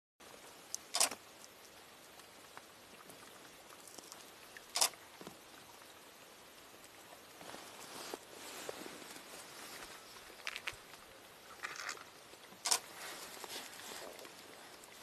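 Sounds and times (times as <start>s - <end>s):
faint steady hiss: 0.2s - 15.0s.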